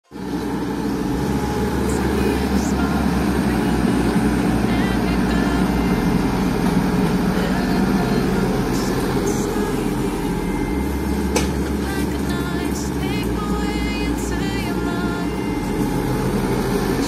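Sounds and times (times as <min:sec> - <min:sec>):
excavator diesel engine running: 0:00.1 - 0:17.0.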